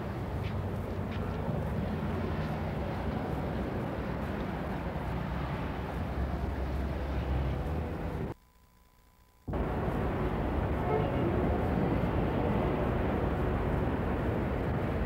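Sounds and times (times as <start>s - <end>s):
city street traffic rumble: 0.0s - 8.4s, 9.5s - 15.0s.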